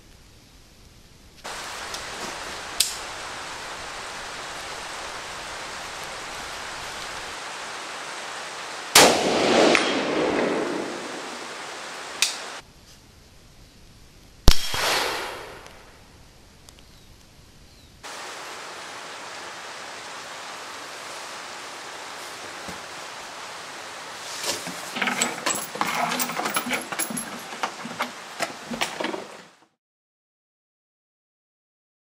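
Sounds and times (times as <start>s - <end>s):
steady hiss: 0.0s - 29.7s
rifle shot echoing: 8.9s - 11.5s, 14.5s - 16.0s
sharp crack with metallic ring: 14.5s - 15.9s.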